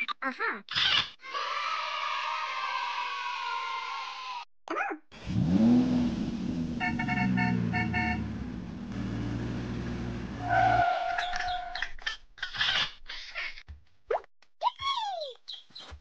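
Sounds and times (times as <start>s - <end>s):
vehicle engine running: 5.2s - 10.5s
short horn toots: 6.8s - 8.5s.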